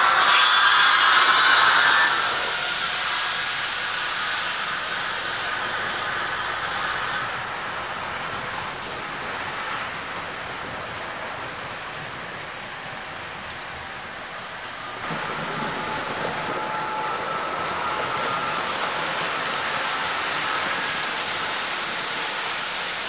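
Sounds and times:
thin high whine: 0.0 - 8.0, 14.5 - 23.0.

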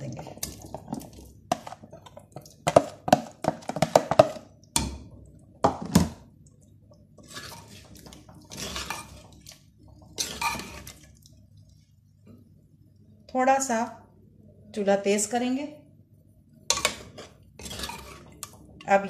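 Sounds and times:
ladle stirring in clay pot: 0.0 - 5.8, 6.5 - 11.9, 16.6 - 19.0
spoon scraping plastic container: 7.2 - 9.3, 16.7 - 18.4.

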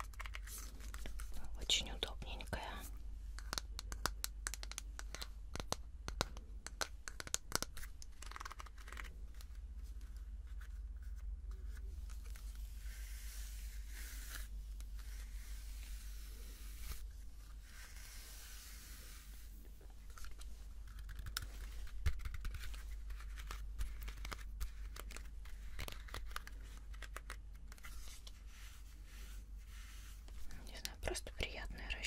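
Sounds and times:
brush rustling through hair: 11.8 - 22.0, 27.8 - 30.7.

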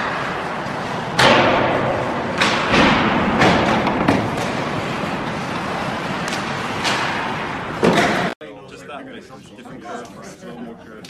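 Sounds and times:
skates scraping on ice: 0.0 - 8.3.

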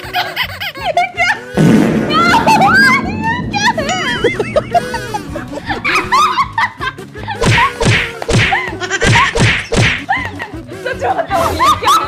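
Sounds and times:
women laughing loudly: 0.0 - 1.5, 3.9 - 7.8, 8.5 - 9.4, 10.0 - 12.0
background music: 0.0 - 12.0.

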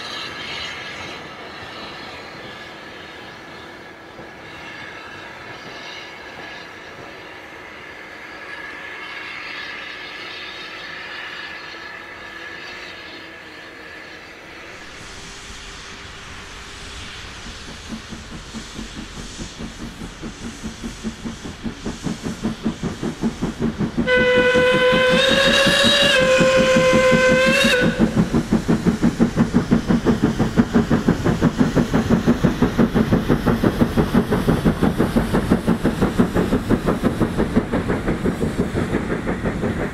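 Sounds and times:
steam locomotive exhaust beats: 0.0 - 39.9
steam whistle blowing: 24.0 - 28.2.

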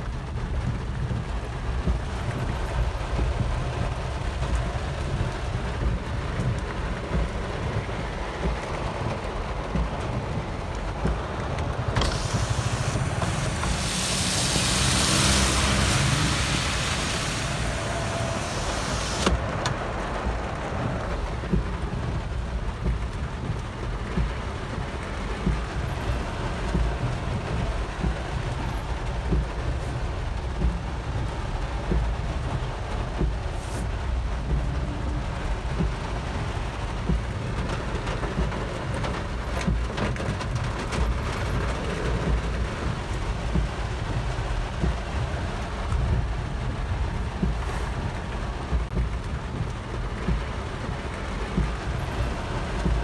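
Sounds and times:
car engine and tyre rumble: 0.0 - 53.0
loud hiss: 12.0 - 19.4.

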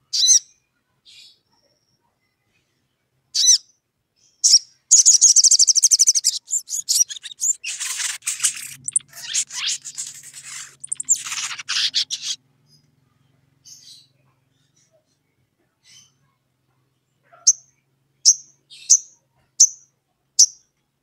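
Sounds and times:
bird chirping and trilling: 0.1 - 0.5, 3.4 - 3.7, 4.4 - 12.8
faint low hum: 5.0 - 18.3.

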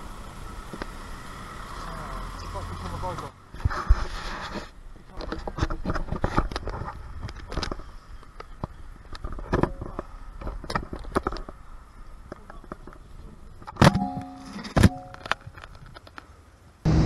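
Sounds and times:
low steady rumble: 16.4 - 17.0.

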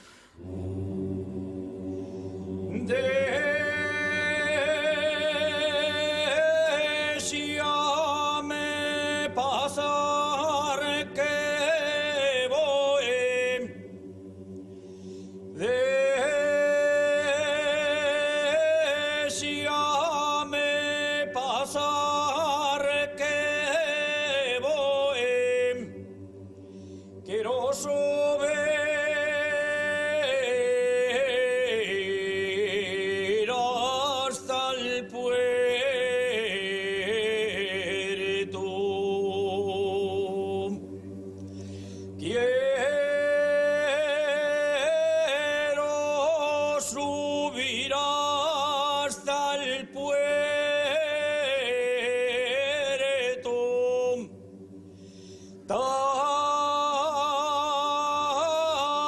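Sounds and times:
men's choir singing: 0.4 - 14.7, 15.4 - 26.1.

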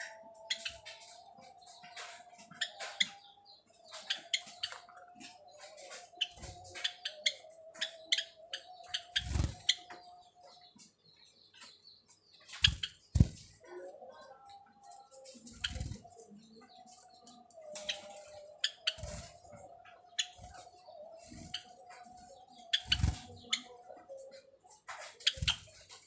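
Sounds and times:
sparrows chirping: 0.0 - 26.0.

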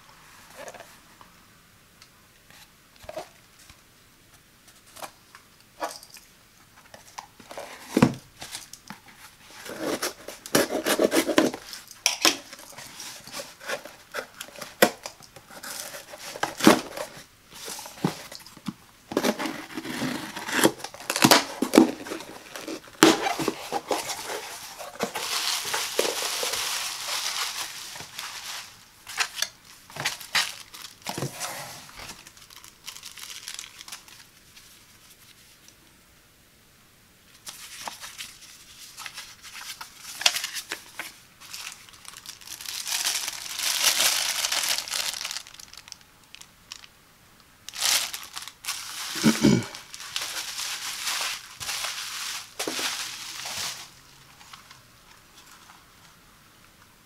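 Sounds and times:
cardboard rustling: 6.8 - 35.4, 37.4 - 45.9, 47.7 - 54.8
bubble wrap crinkling: 6.9 - 35.7, 37.3 - 46.9, 47.6 - 54.8
paper handling: 7.4 - 34.8, 47.7 - 54.8
packing tape tearing: 9.6 - 17.2, 19.1 - 34.3, 39.0 - 46.0, 47.7 - 53.9.

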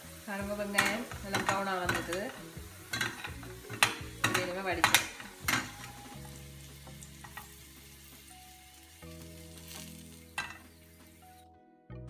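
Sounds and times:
oil sizzling in frying pan: 0.0 - 11.4
background music of held notes: 0.0 - 12.0
metal spoon knocking on pan: 0.6 - 6.2, 7.2 - 7.6, 10.4 - 10.7.

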